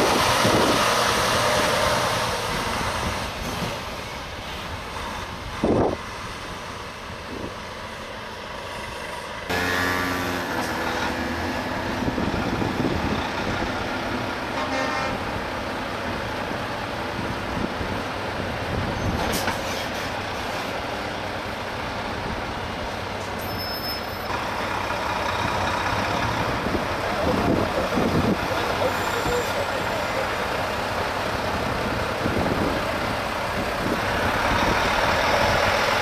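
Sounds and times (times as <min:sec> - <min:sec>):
trucks driving past: 0:00.0 - 0:23.4, 0:24.0 - 0:36.0
air horn blast: 0:09.5 - 0:11.3, 0:14.6 - 0:15.2.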